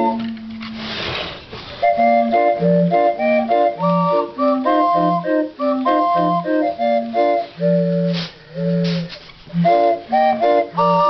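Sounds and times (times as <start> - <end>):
street organ playing lively tune: 0.0 - 0.8, 1.8 - 11.0.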